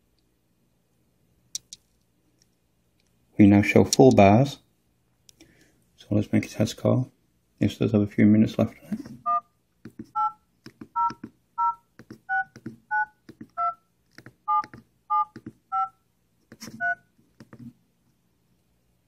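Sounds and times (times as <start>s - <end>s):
key press clicks: 9.9s - 15.9s
phone keypad touch-tone beeps: 10.2s - 10.4s, 11.0s - 13.8s, 14.5s - 16.0s, 16.8s - 17.0s.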